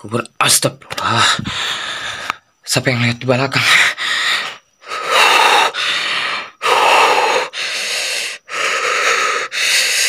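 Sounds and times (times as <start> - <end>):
person breathing hard: 1.0 - 2.6, 3.6 - 10.0.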